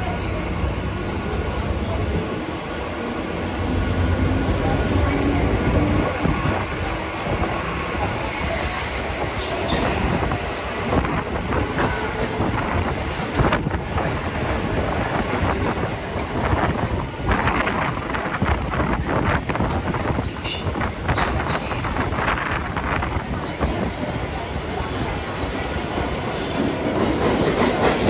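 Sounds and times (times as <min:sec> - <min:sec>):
train wheels rumbling on rails: 0:00.0 - 0:28.0
wind on microphone: 0:04.2 - 0:24.4.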